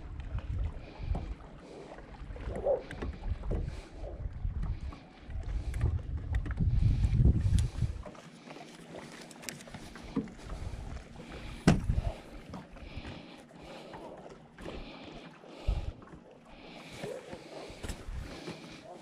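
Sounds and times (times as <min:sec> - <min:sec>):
fishing tackle clicks and rustles: 0:05.4 - 0:13.2
dull bump: 0:11.6 - 0:12.2.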